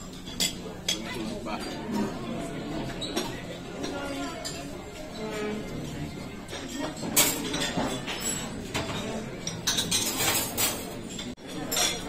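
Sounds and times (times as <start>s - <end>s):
cutlery and crockery clinking: 0.0s - 2.2s, 2.8s - 12.0s
steady background noise: 0.0s - 12.0s.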